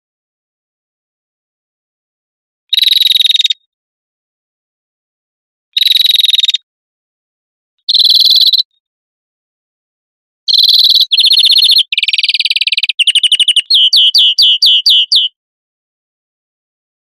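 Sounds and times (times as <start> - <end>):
fast rattling bird trills: 7.9 - 8.6, 10.5 - 15.3
greenfinch song: 7.9 - 8.7, 10.5 - 15.4.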